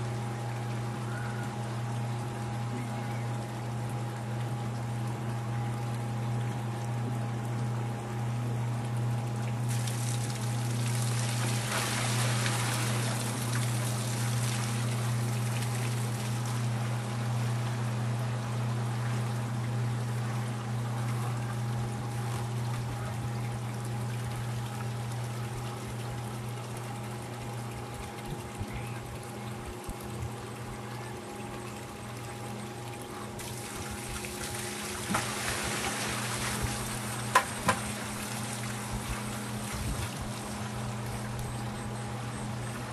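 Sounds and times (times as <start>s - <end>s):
electric pump humming: 0.0s - 42.9s
water pouring into plastic bucket: 9.7s - 16.0s.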